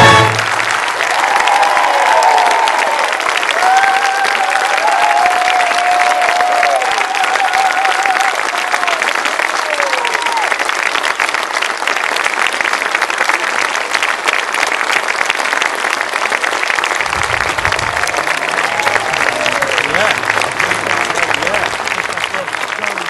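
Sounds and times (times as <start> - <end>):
audience applauding: 0.0 - 23.0
crowd whooping: 0.1 - 10.5, 17.0 - 22.4.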